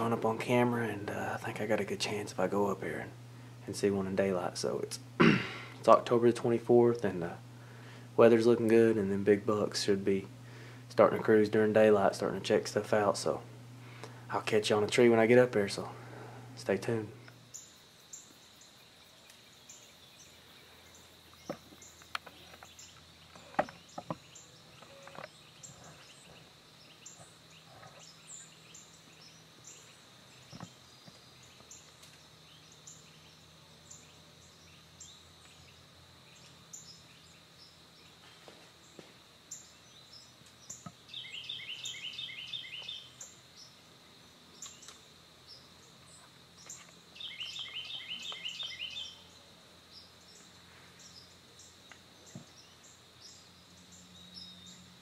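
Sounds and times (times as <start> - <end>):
bird chirps: 38.8 - 43.8, 44.5 - 55.0.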